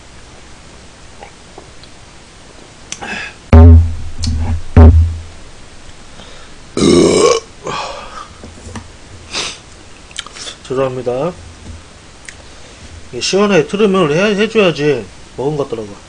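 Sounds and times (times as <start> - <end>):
man burping: 6.8 - 7.9.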